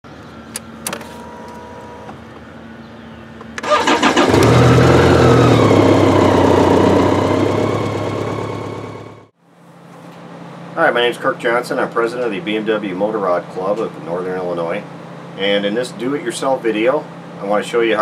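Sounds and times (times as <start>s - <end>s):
vehicle engine starting and running: 3.4s - 9.4s.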